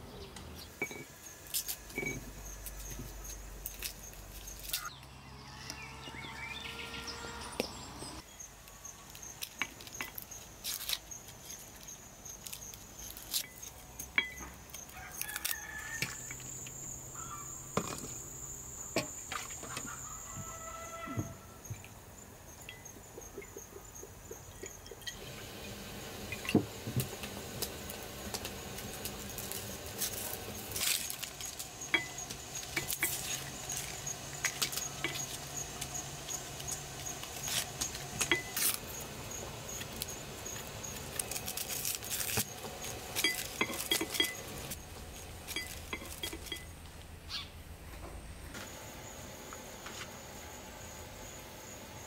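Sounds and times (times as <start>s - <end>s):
insects chirping: 0.1s - 52.0s
kitchenware clinking and knocking: 0.8s - 1.1s, 1.9s - 2.3s, 43.2s - 44.5s, 45.5s - 46.7s.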